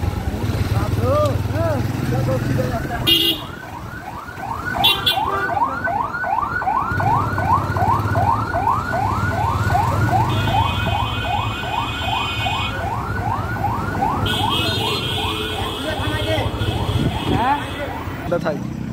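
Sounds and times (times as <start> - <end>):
electronic siren wailing: 3.5 - 15.9.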